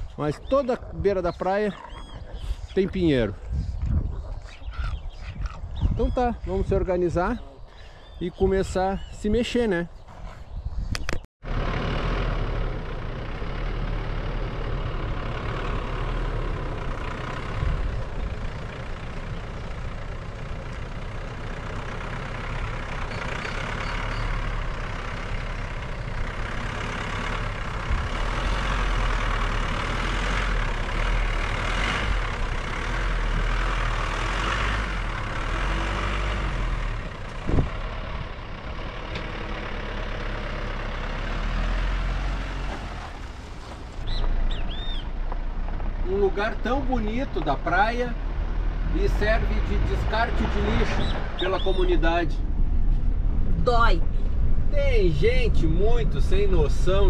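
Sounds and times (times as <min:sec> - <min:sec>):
motorhome engine rumble: 0:00.0 - 0:57.0.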